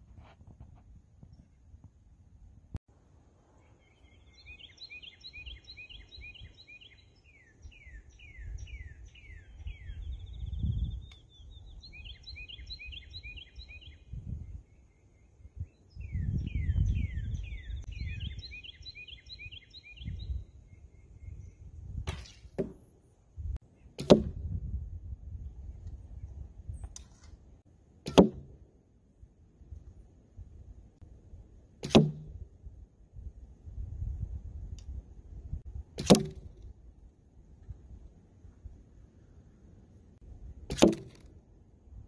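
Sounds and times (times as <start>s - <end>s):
songbird trilling: 3.8s - 14.1s, 14.8s - 21.6s
wind on microphone: 8.2s - 14.7s, 15.4s - 18.6s, 20.0s - 22.5s, 24.2s - 27.0s, 32.2s - 37.0s
arrow striking foam target: 22.0s - 22.9s, 24.0s - 24.6s, 28.0s - 28.6s, 31.8s - 32.4s, 35.9s - 36.7s, 40.6s - 41.3s
bow clicks: 36.0s - 36.7s, 40.7s - 41.4s.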